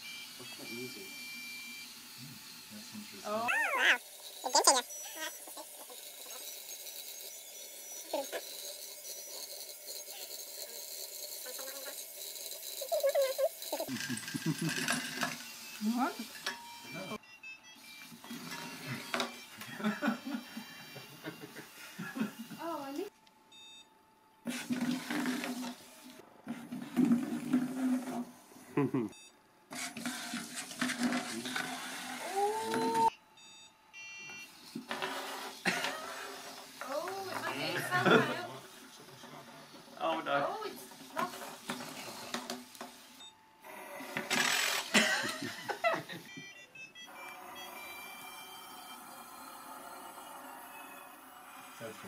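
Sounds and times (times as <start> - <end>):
small gear motors whining: 0.0 - 23.1, 30.0 - 52.0
rising tone: 3.5 - 4.0
short electronic beeps: 32.8 - 34.5, 46.3 - 49.0.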